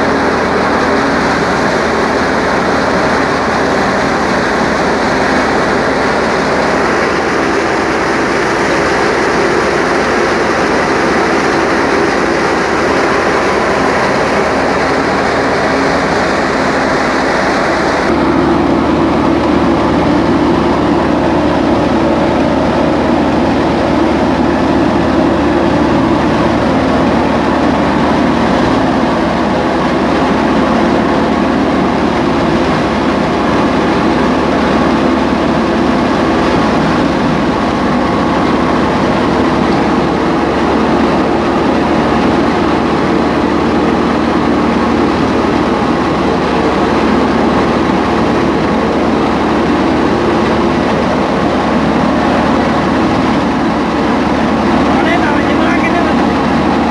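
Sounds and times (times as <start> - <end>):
grain pouring from chute: 0.0 - 56.9
wheat thresher running loudly: 0.0 - 56.9.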